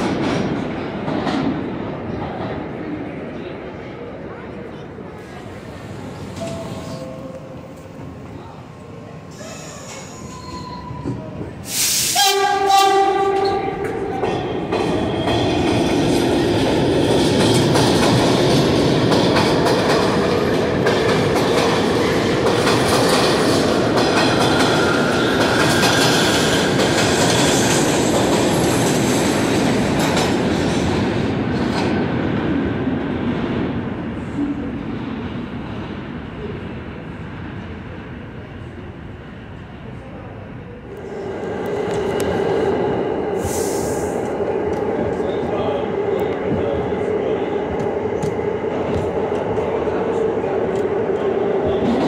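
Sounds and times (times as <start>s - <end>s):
train wheels rumbling on rails: 0.0s - 52.0s
train horn blast: 12.0s - 14.2s.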